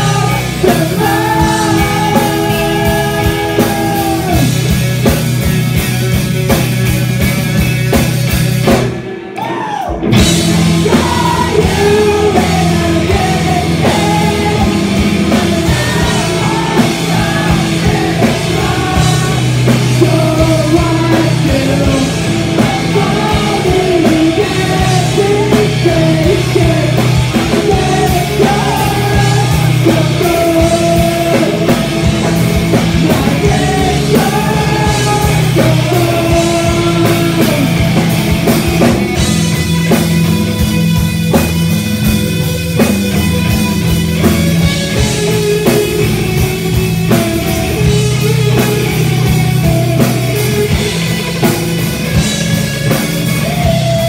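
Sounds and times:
person singing: 0.0s - 4.7s, 9.4s - 38.1s
bass guitar: 0.0s - 54.0s
drum kit: 0.0s - 54.0s
electric guitar: 0.0s - 54.0s.

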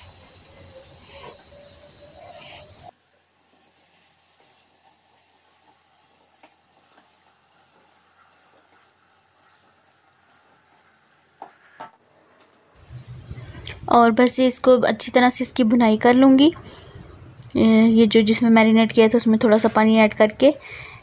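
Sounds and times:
food sizzling in pot: 0.0s - 11.8s.

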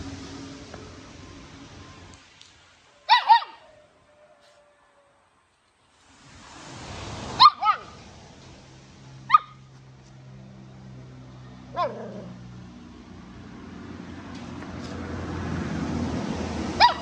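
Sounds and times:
puppy yapping: 3.1s - 3.8s, 7.4s - 8.0s, 9.3s - 9.6s, 11.7s - 12.4s, 16.8s - 17.0s.

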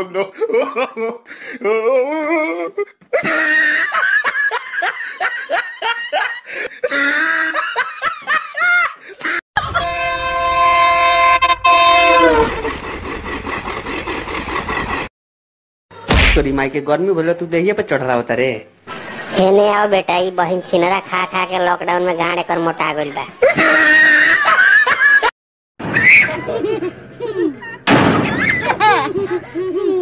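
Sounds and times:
person laughing: 0.0s - 9.9s, 23.4s - 25.3s, 26.3s - 30.0s
loud horn chord: 9.8s - 12.5s.

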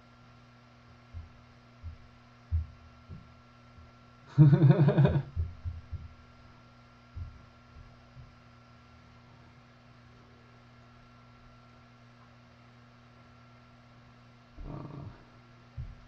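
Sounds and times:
steady electrical hum: 0.0s - 16.0s
soft low thumps: 1.0s - 8.4s, 14.6s - 16.0s
man laughing: 4.3s - 5.4s.

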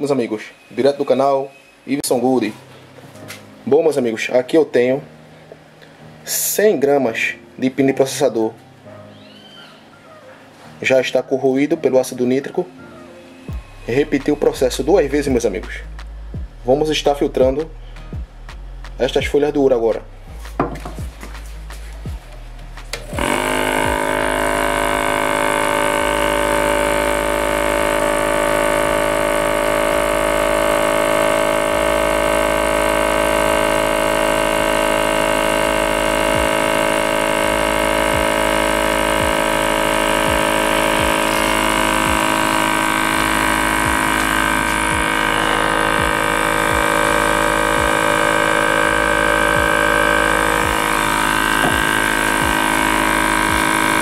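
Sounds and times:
vacuum pump humming: 22.0s - 54.0s.

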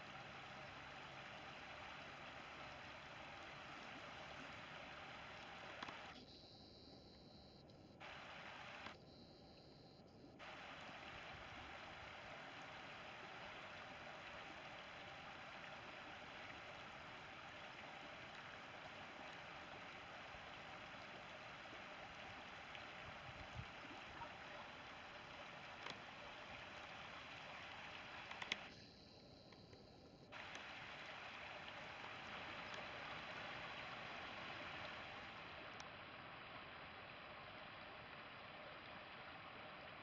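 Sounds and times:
click: 5.8s - 6.3s, 7.0s - 7.8s, 8.8s - 9.0s, 25.8s - 26.0s, 28.2s - 28.8s, 29.4s - 30.7s
river rushing over gravel: 10.4s - 28.7s.

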